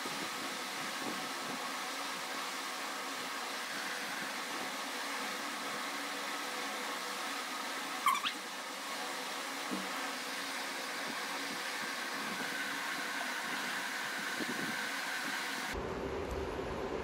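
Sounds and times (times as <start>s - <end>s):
steady whirring hiss: 0.0s - 17.0s
short rising squeak: 8.0s - 8.4s.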